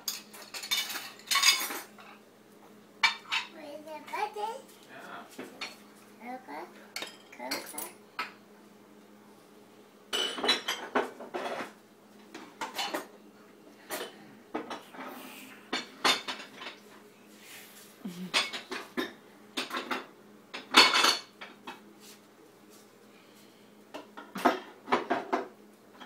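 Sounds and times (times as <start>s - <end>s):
dishes and cutlery clattering: 0.0s - 2.2s, 7.0s - 8.4s, 10.1s - 11.7s, 12.6s - 13.1s, 15.7s - 16.8s, 18.3s - 21.8s, 24.1s - 26.0s.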